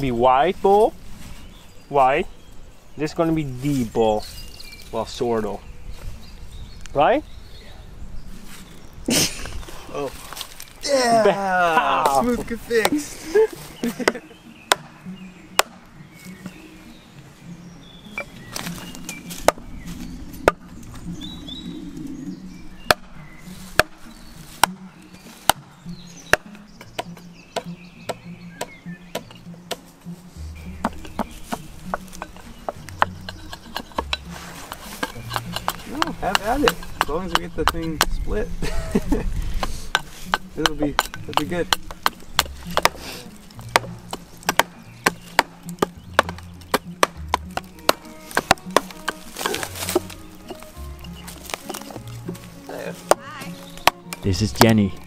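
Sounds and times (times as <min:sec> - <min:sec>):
hatchet chopping wood: 0:12.8 - 0:13.1, 0:13.8 - 0:15.9, 0:18.5 - 0:19.7, 0:20.4 - 0:20.6, 0:22.8 - 0:29.9, 0:30.6 - 0:38.3, 0:39.5 - 0:50.6, 0:51.2 - 0:54.8
wooden club knocking axe head: 0:13.9 - 0:15.9, 0:19.4 - 0:19.6, 0:22.9 - 0:25.7, 0:26.3 - 0:29.9, 0:30.7 - 0:38.3, 0:39.6 - 0:50.6, 0:51.2 - 0:54.8.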